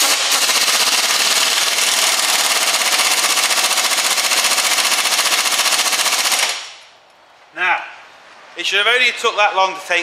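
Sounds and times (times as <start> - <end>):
impact wrench rattling: 0.0 - 6.8.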